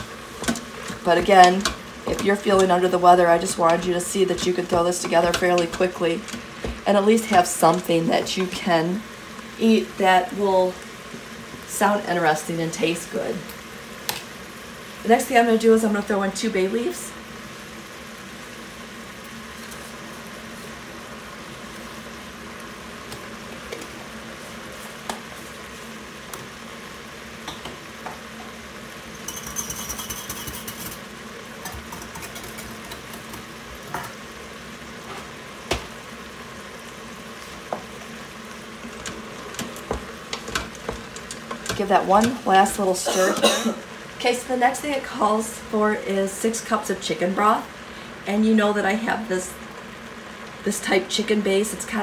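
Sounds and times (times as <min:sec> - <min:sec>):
food sizzling in pot: 0:00.0 - 0:52.0.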